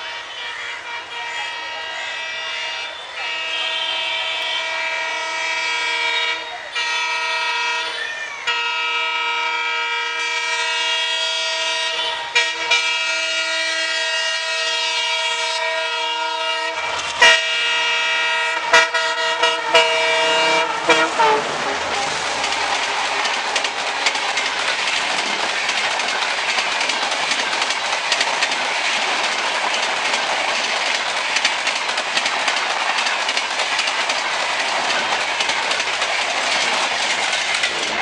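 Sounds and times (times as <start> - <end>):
locomotive air horn honking: 0.0 - 22.3
sharp knocks of passing train: 11.7 - 38.0.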